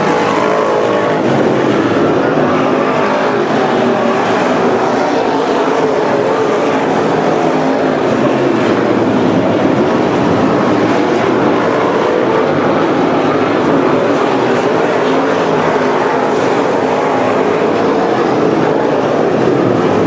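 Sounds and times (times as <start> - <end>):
race car engines passing: 0.0 - 20.0.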